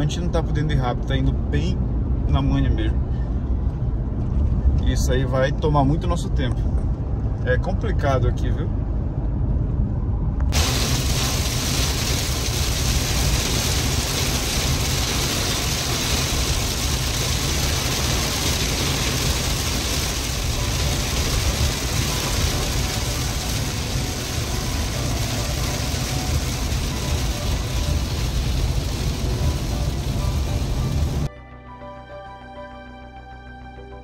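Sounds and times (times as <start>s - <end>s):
engine and tyre rumble: 0.0s - 31.3s
heavy rain hitting car: 10.5s - 31.3s.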